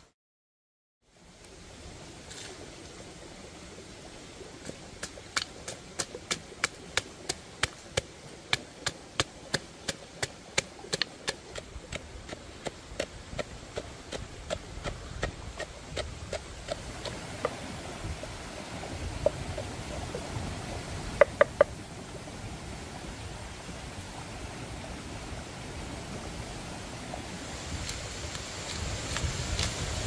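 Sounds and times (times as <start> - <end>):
steady hiss: 15.9 - 30.0.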